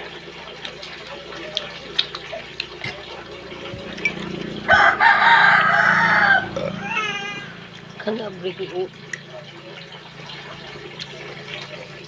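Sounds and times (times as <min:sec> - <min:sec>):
rooster crowing: 0:04.6 - 0:07.6.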